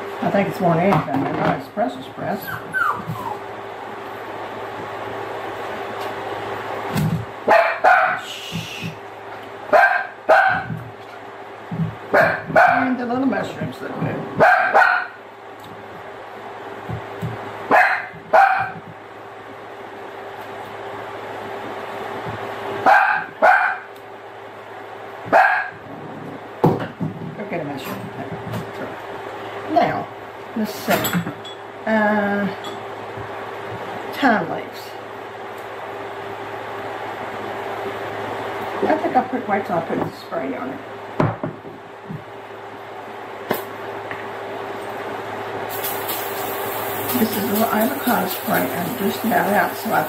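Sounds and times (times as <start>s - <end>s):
steady low hum: 0.0s - 50.0s
dog barking: 7.5s - 8.2s, 9.7s - 10.8s, 12.1s - 12.9s, 14.4s - 15.2s, 17.7s - 18.8s, 22.8s - 23.9s, 25.3s - 25.8s
cooking spray hissing: 45.6s - 50.0s.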